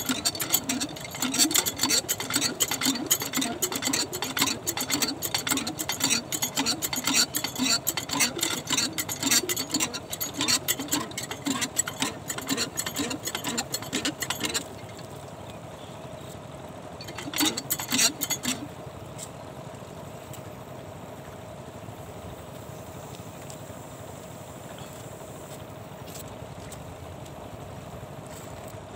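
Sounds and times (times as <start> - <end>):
pump engine knocking: 0.0 - 15.1, 17.0 - 18.8
steady hum: 0.0 - 15.2.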